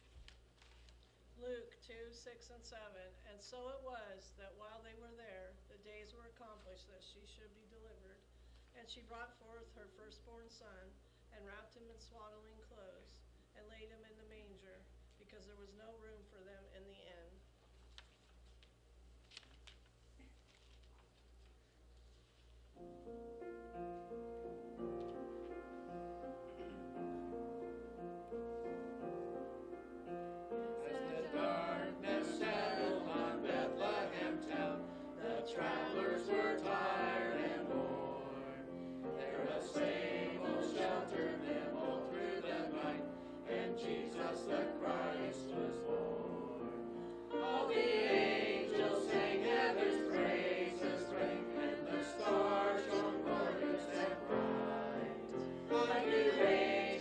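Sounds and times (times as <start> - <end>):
instrumental accompaniment chords: 22.8 - 57.0
mixed choir singing: 30.5 - 57.0.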